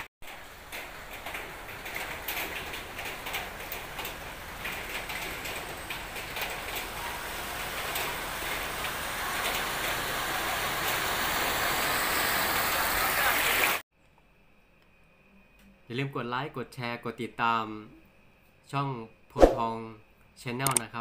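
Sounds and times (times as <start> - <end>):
water ticks and splashes: 0.2 - 11.1
car driving through floodwater: 6.4 - 13.8.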